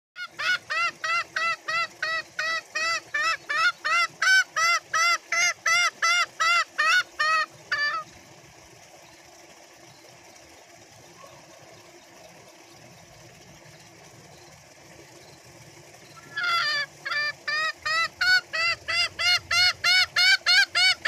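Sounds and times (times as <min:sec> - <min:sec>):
junglefowl harsh calls: 0:00.2 - 0:08.1, 0:16.2 - 0:21.0.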